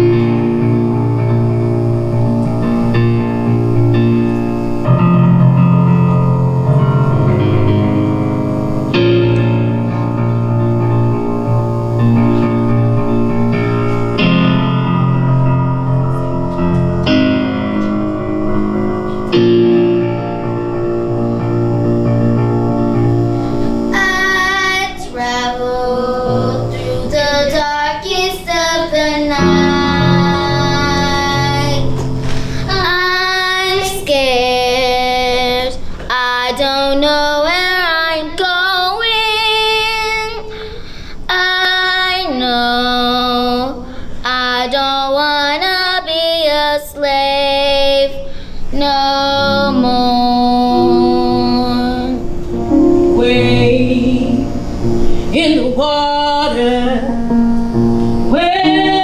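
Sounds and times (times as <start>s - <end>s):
sustained instrumental chords: 0.0s - 35.4s, 48.8s - 59.0s.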